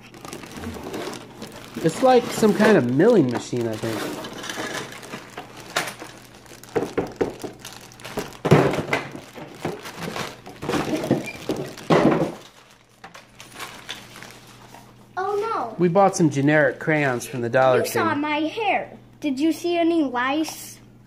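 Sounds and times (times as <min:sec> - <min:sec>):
plastic toy parts clattering: 0:00.0 - 0:14.1
packaging crinkling: 0:00.0 - 0:15.0.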